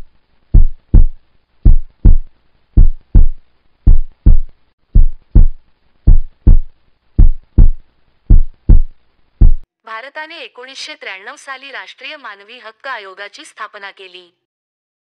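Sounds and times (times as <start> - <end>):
heartbeat thumps: 0.0 - 9.7.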